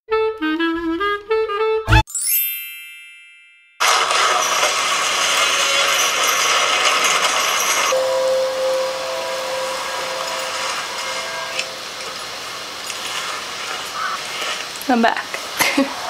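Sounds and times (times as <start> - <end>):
chains and gears grinding: 3.8 - 8.4
steady held tone: 7.9 - 12.8.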